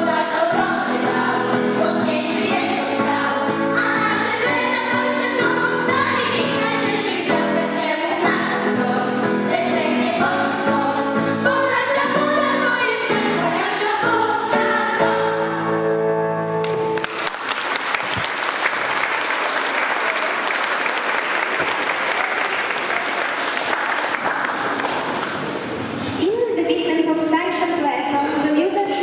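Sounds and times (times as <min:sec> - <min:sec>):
children's choir singing: 0:00.0 - 0:15.9
audience applause: 0:16.6 - 0:25.6.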